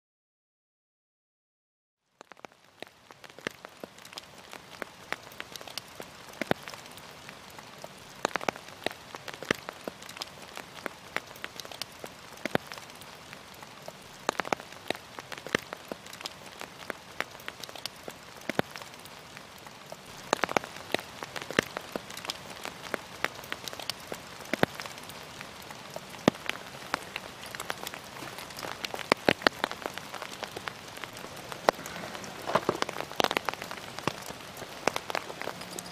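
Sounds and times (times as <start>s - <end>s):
rain falling: 2.1s - 35.9s.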